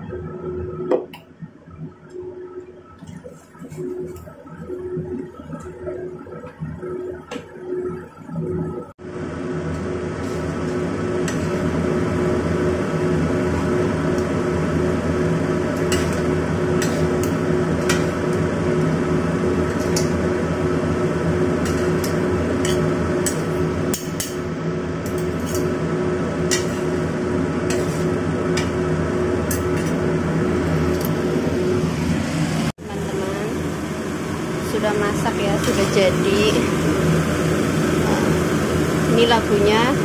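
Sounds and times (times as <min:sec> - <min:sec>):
steady low hum: 0:00.0 - 0:40.0
metal utensils scraping a wok: 0:26.4 - 0:27.0, 0:27.7 - 0:28.8.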